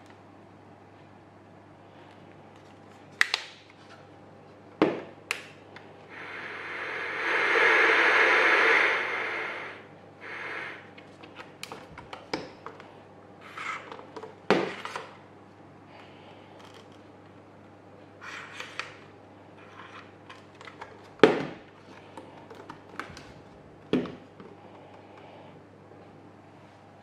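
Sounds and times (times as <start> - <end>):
radio static hiss: 6.1 - 10.9.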